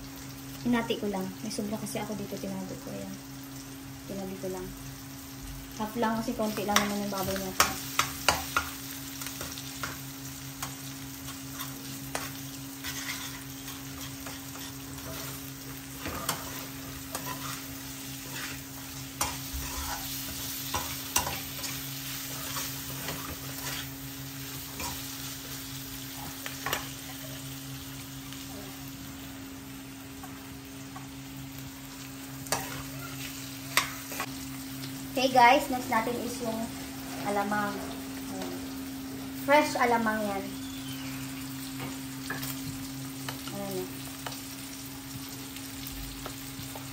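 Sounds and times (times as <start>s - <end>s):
pork sizzling in a wok: 0.0s - 46.9s
metal ladle scraping wok: 11.6s - 15.4s.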